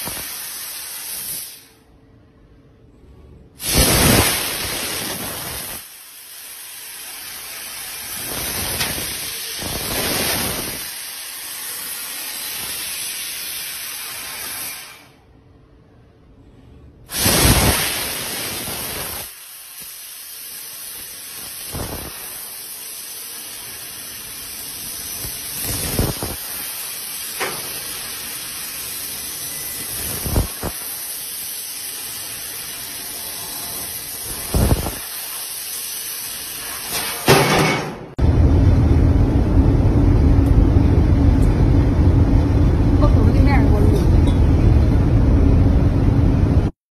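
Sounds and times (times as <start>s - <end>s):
laser cutter gas hiss: 0.0s - 1.9s, 3.6s - 15.2s, 17.1s - 37.6s.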